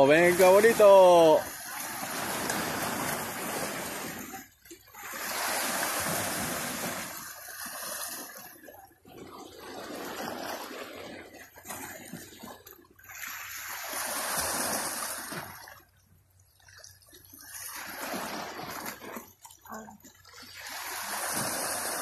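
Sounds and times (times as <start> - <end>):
waves splashing on rocky shore: 0.0 - 12.5, 13.1 - 15.6, 20.5 - 22.0.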